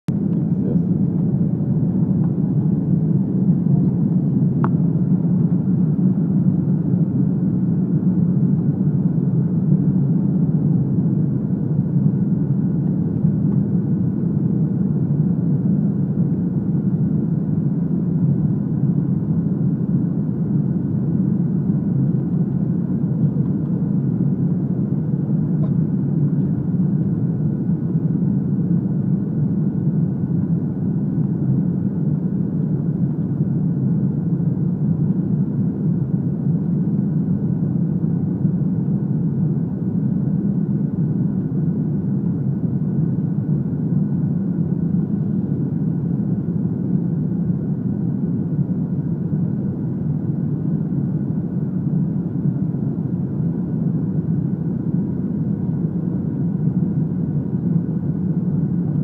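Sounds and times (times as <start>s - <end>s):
aircraft cabin engine rumble: 0.1s - 59.0s.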